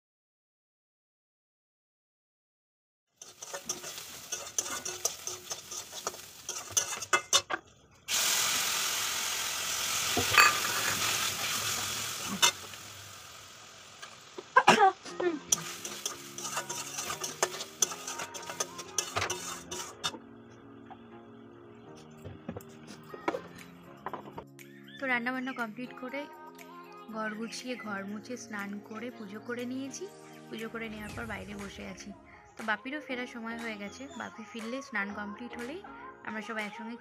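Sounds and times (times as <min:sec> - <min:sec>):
metal spatula scraping a pan: 0:03.2 - 0:07.6, 0:10.1 - 0:12.7, 0:15.4 - 0:20.2
frying sizzle: 0:03.2 - 0:20.2
background music: 0:14.6 - 0:37.0.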